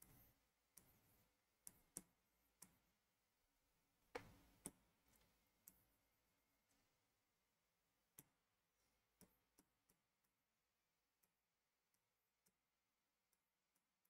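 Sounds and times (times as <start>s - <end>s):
marker tapping on a board: 4.2s - 4.8s.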